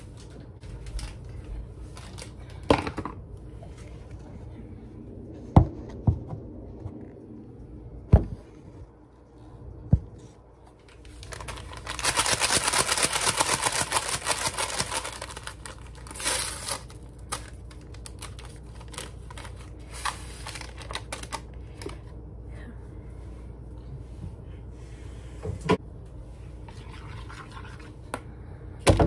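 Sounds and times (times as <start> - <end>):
packaging crinkling: 10.9 - 22.1.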